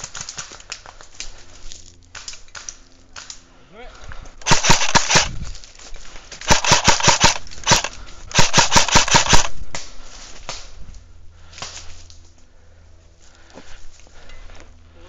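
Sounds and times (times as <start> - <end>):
airsoft rifle full-auto bursts: 4.4 - 5.4, 6.4 - 9.6.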